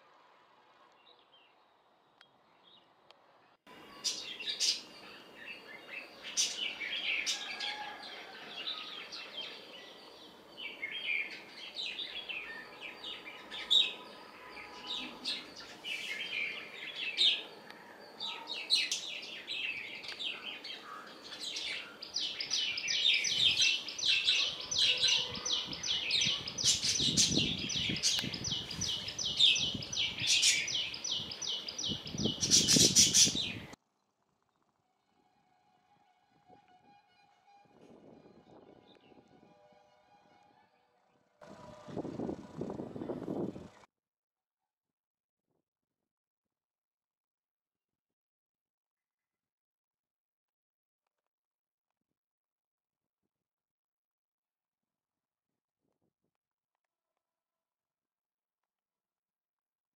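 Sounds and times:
songbirds chirping: 0:00.2 - 0:35.2, 0:38.1 - 0:39.5.

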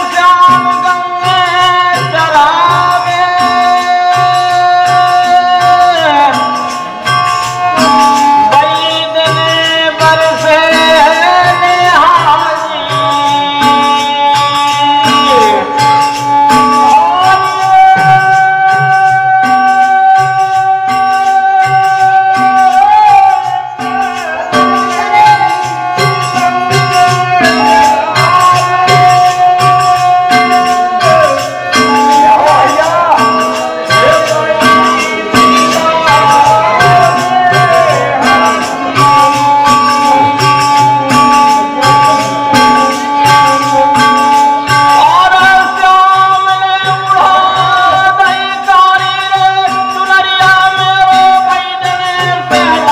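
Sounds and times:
hand cymbals jingling: 0:00.0 - 0:52.9
harmonium holding long notes: 0:00.0 - 0:52.9
man singing: 0:00.0 - 0:52.9
steady drum beat: 0:00.0 - 0:52.9.

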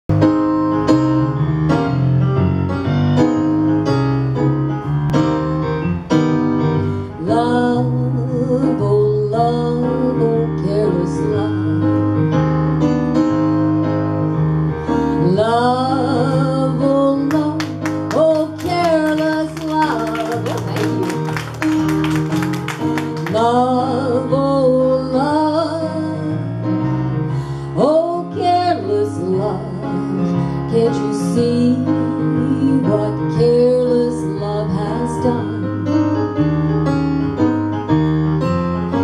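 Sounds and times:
keyboard piano chords: 0:00.1 - 0:39.0
woman singing: 0:07.2 - 0:12.0, 0:15.2 - 0:21.2, 0:23.2 - 0:26.5, 0:27.8 - 0:35.7.

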